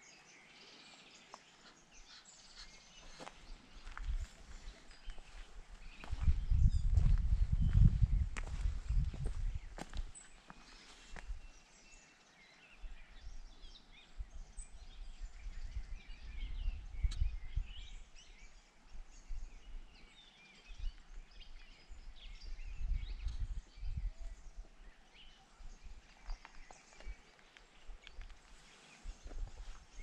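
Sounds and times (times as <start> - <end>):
songbirds chirping: 0.0 - 30.0
wind rumble on microphone: 3.5 - 10.1, 12.8 - 30.0.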